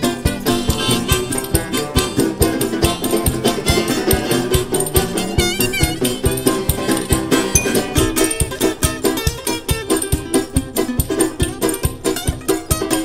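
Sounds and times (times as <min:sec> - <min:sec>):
harmonica: 0:00.0 - 0:02.5
guitar strummed and picked: 0:00.0 - 0:13.0
high wavering melody line: 0:07.6 - 0:08.6
clicking hand percussion: 0:07.6 - 0:09.5.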